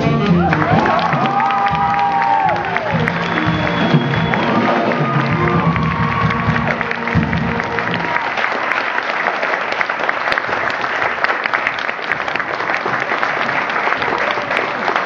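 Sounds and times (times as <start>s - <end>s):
stage music: 0.0s - 15.0s
audience applauding: 0.3s - 15.0s.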